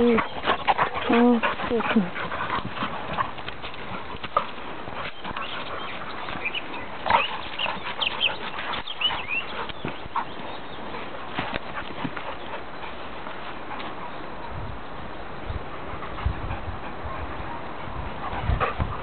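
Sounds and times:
dogs yelping and whining: 0:00.0 - 0:12.6.

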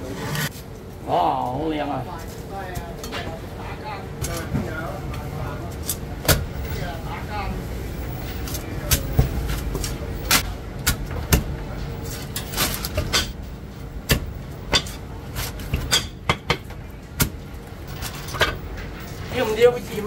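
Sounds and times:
low hum of shop: 0:00.0 - 0:20.0
cleaver chopping on wooden block: 0:14.1 - 0:15.0.

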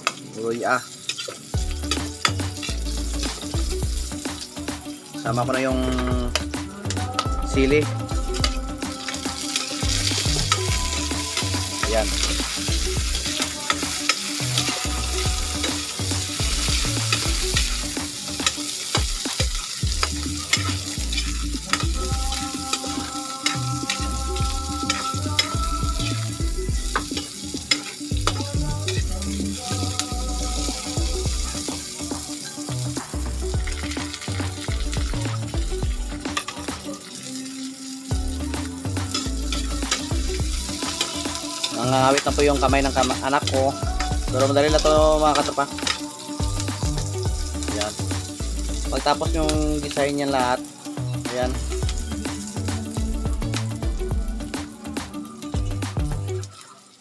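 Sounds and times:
food sizzling in hot oil: 0:00.0 - 0:57.0
metal ladle scraping pan: 0:00.9 - 0:04.5, 0:08.3 - 0:30.1
metal ladle clacking and scraping pan: 0:01.0 - 0:03.5, 0:15.6 - 0:21.9, 0:26.9 - 0:29.0.

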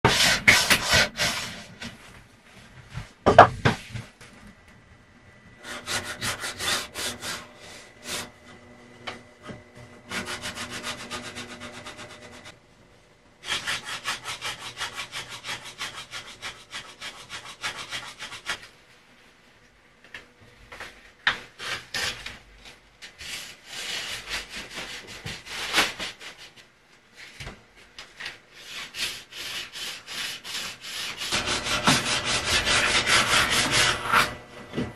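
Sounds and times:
hand tool sawing wood: 0:00.0 - 0:01.7, 0:05.6 - 0:08.4, 0:09.4 - 0:12.5, 0:13.4 - 0:18.6, 0:28.6 - 0:34.9.

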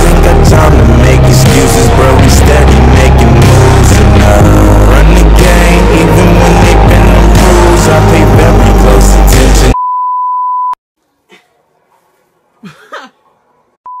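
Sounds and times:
rap song with heavy bass beat: 0:00.0 - 0:09.8
high beep tone: 0:09.8 - 0:10.8.

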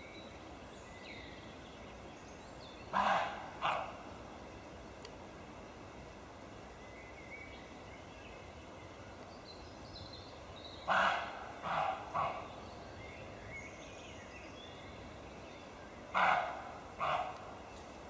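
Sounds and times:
deer barking: 0:03.0 - 0:04.0, 0:10.9 - 0:12.5, 0:16.1 - 0:17.5.

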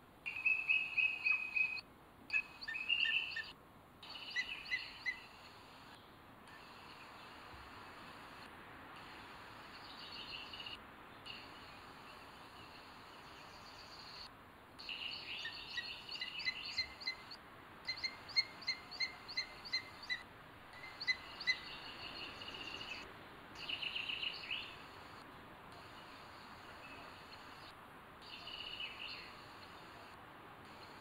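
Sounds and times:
birds singing whistled notes: 0:00.3 - 0:05.4, 0:14.8 - 0:20.2, 0:20.8 - 0:23.0, 0:23.6 - 0:24.8, 0:28.2 - 0:29.4
steady hiss: 0:02.5 - 0:31.0.

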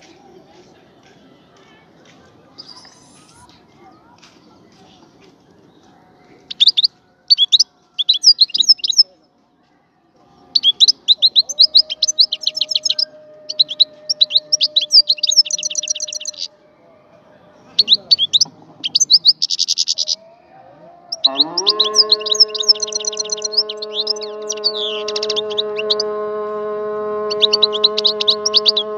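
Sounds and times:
finch singing: 0:06.4 - 0:09.1, 0:10.6 - 0:16.5, 0:17.8 - 0:20.2, 0:21.1 - 0:26.2, 0:27.3 - 0:28.9.

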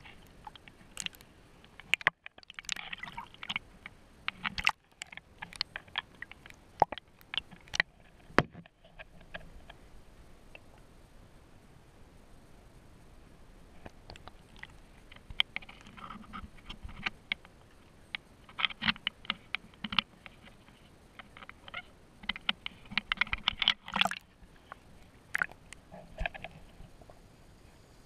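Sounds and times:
water splashing against camera housing: 0:04.3 - 0:08.7, 0:21.3 - 0:24.2, 0:25.3 - 0:26.6.

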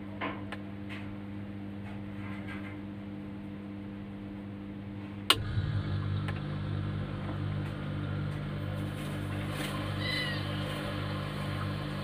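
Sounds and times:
refrigerator humming: 0:00.0 - 0:12.0
fridge compressor humming: 0:03.2 - 0:12.0.

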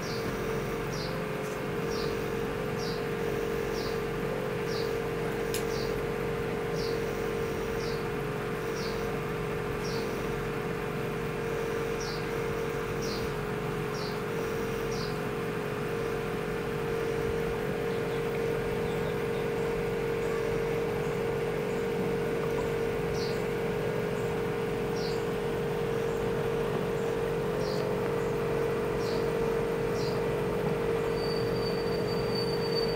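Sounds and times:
aquarium air pump humming: 0:00.0 - 0:32.9.

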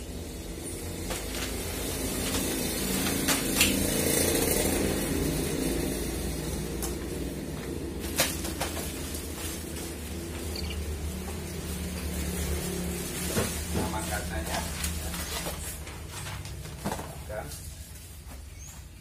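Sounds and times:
traffic rumble: 0:00.0 - 0:19.0
paper and packing rustling: 0:07.9 - 0:18.4.

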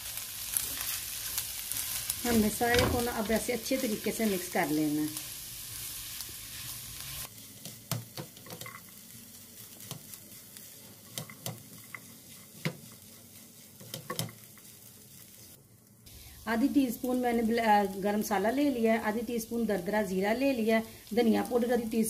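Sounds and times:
faint steady hiss: 0:00.0 - 0:22.0
spoon mashing food in a pan: 0:09.8 - 0:14.8.

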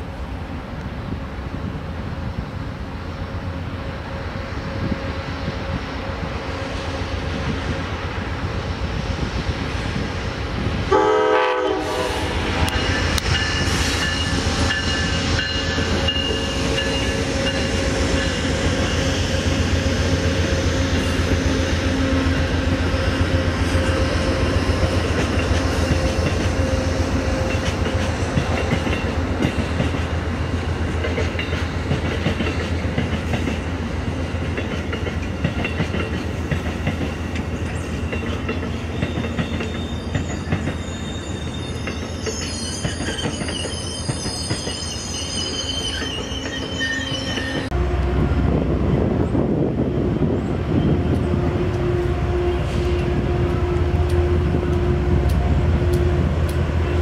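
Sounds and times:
diesel locomotive drone: 0:00.0 - 0:57.0
train horn blast: 0:10.9 - 0:13.2, 0:47.0 - 0:48.9, 0:50.7 - 0:57.0
train wheels clicking over rail joints: 0:12.5 - 0:45.0.

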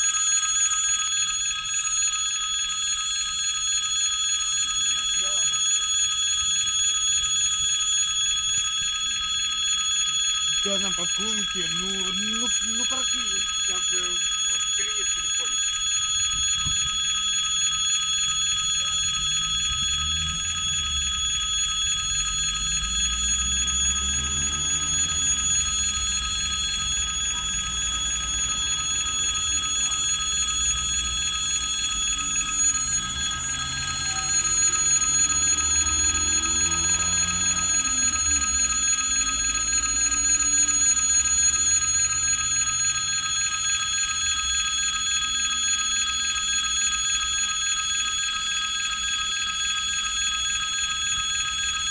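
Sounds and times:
crossing warning bell ringing: 0:10.3 - 0:15.6, 0:16.3 - 0:42.0.

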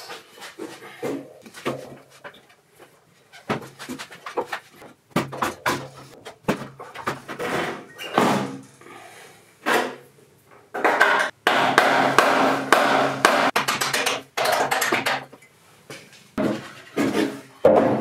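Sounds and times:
metal and wooden knocks and clatter: 0:10.7 - 0:11.4, 0:13.3 - 0:15.4.

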